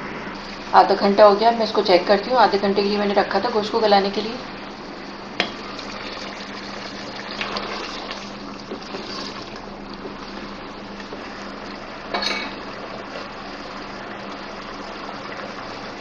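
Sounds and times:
curry simmering with hiss: 0.1 - 16.0
wooden spatula stirring: 7.3 - 11.7.

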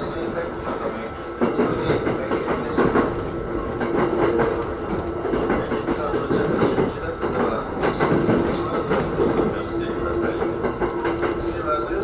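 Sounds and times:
train running gear hum: 0.0 - 12.0
train wheels clacking over rail joints: 0.0 - 12.0.

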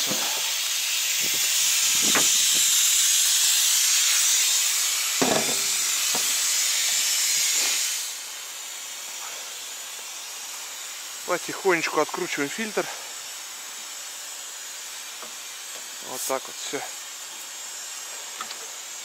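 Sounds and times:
compressed air hissing: 0.0 - 19.0
short metallic knock: 5.2 - 5.8.

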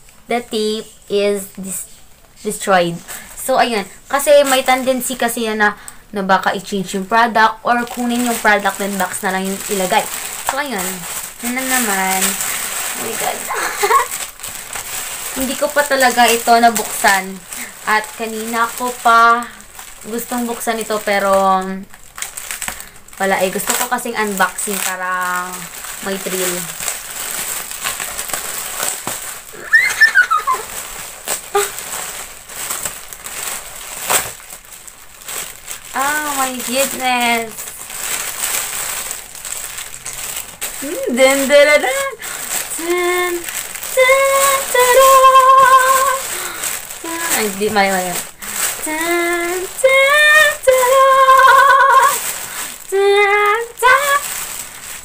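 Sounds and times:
plastic packaging crinkling: 0.0 - 55.0
girl singing wordless notes: 40.9 - 46.3, 48.8 - 52.2, 52.8 - 54.3.

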